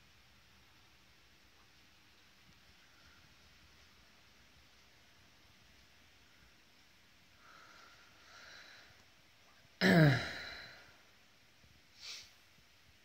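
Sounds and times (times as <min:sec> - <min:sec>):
faint breaths: 0:02.4 - 0:12.8
man sighing loudly: 0:09.8 - 0:10.9.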